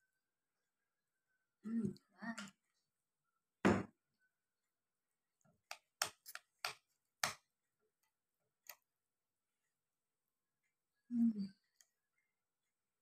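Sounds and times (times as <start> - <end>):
bottle set down on table: 3.6 - 3.9.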